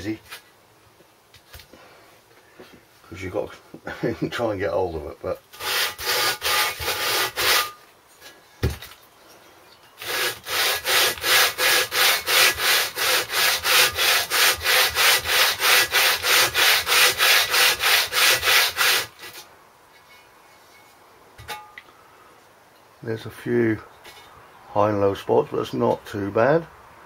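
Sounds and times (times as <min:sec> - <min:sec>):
metal rasping on abrasive paper: 0:05.5 - 0:07.8, 0:10.0 - 0:19.4.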